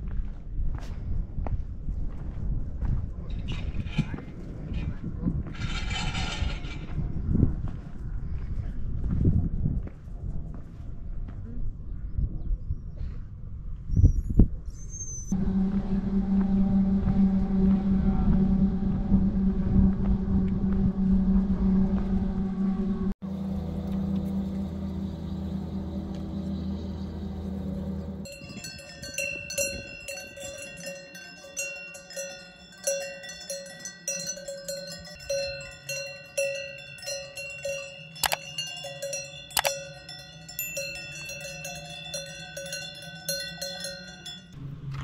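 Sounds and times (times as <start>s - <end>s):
steady low hum: 15.3s - 45.0s
cowbells clanking: 28.2s - 44.6s.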